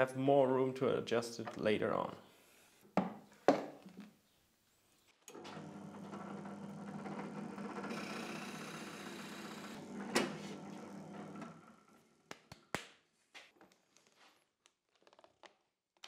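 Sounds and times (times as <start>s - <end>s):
drill press motor running: 5.3s - 11.9s
drill bit boring into wood: 6.0s - 9.9s.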